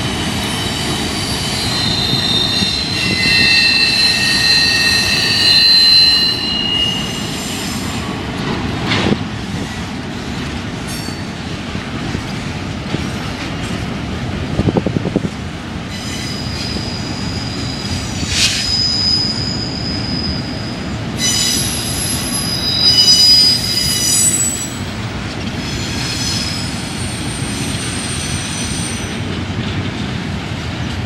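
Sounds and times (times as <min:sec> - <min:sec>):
train rumbling past: 0:00.0 - 0:31.0
train wheels squealing: 0:00.4 - 0:08.0, 0:15.9 - 0:29.2.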